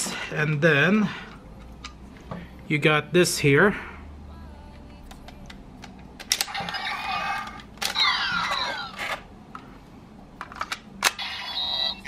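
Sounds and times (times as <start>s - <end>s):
toy electronic sound effects: 6.4s - 9.2s, 11.0s - 12.0s.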